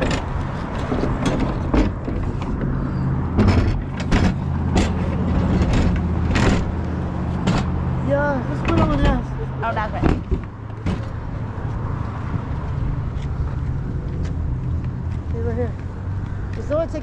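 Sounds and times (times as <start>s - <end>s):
sharp clicks and knocks: 0.0s - 7.8s, 10.0s - 11.2s.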